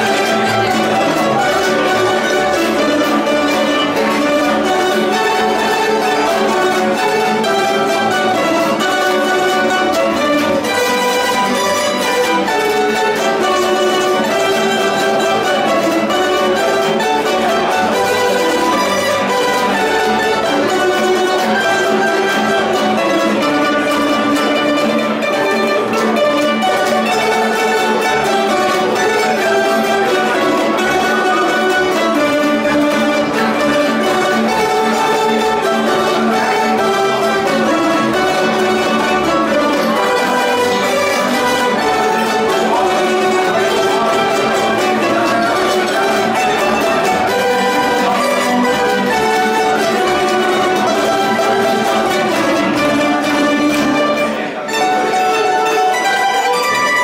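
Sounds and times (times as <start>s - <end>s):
plucked string ensemble playing: 0.0s - 57.0s.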